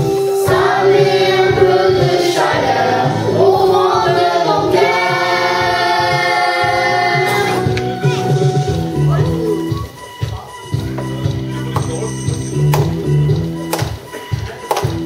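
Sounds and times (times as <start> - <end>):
group singing into microphones: 0.0 - 8.0
recorded backing music: 0.0 - 15.0.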